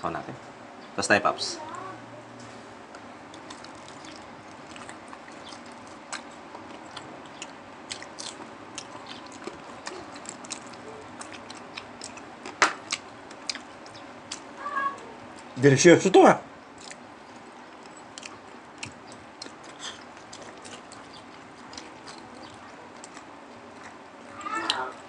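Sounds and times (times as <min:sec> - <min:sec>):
crackling crunches: 0:02.9 - 0:14.6, 0:16.7 - 0:25.0
crunchy chewing of fried pork: 0:02.9 - 0:15.6, 0:16.5 - 0:25.0.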